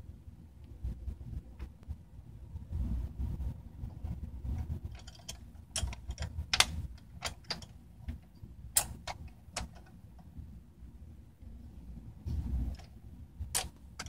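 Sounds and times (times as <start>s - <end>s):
metal clicks and taps: 4.9s - 8.2s.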